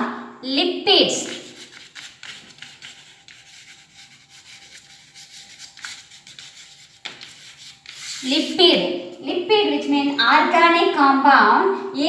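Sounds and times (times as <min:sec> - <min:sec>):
chalk scratching on blackboard: 0:01.1 - 0:08.6.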